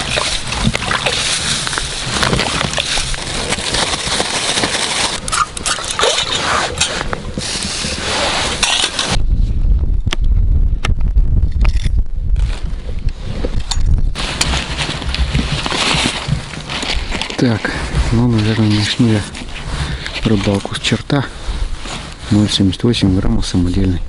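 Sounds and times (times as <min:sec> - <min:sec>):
plastic bag crinkling: 0:00.0 - 0:06.4, 0:14.2 - 0:17.6
low rumble: 0:00.0 - 0:20.4.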